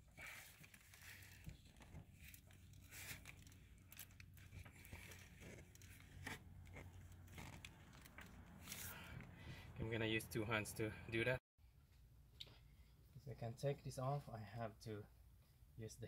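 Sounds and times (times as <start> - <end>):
rustles and clicks of handling: 0.0 - 9.4.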